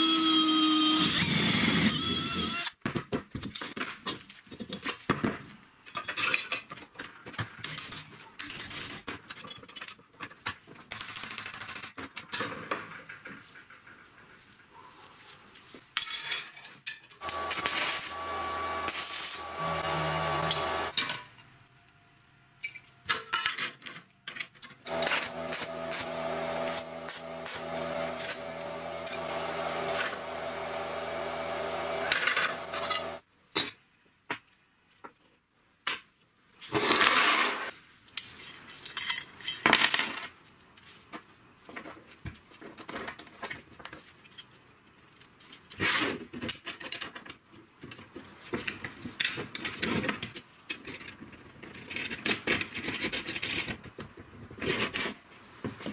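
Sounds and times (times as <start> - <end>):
electric power tool motor: 0.0 - 2.7, 17.2 - 21.0, 24.9 - 33.2
short noisy bursts: 17.2 - 20.9
steel parts and tools clinking: 38.0 - 39.7.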